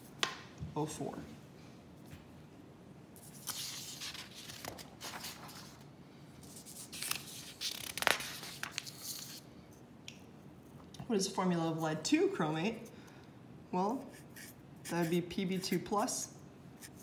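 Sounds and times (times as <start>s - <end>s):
paper crackling: 3.2s - 5.8s, 6.5s - 9.4s
paper rustling and sliding: 3.2s - 9.4s.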